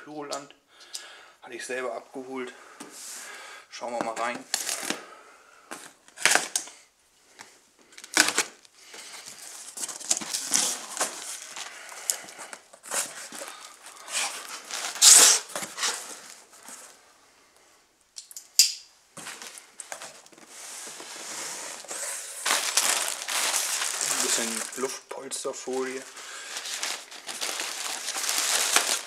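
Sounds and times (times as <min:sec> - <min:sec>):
packing tape ripping: 0:06.2 - 0:06.7, 0:08.0 - 0:08.6, 0:12.9 - 0:16.4, 0:21.8 - 0:24.9, 0:26.4 - 0:29.0
cardboard scraping and rustling: 0:09.4 - 0:11.7.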